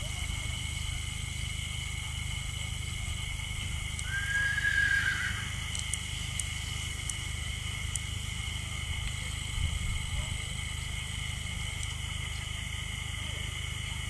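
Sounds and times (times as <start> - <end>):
horse whinnying: 4.1 - 5.6.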